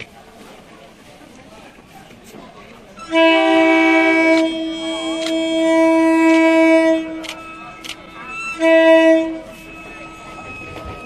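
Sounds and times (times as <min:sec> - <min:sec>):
train horn blasts: 0:03.0 - 0:11.0.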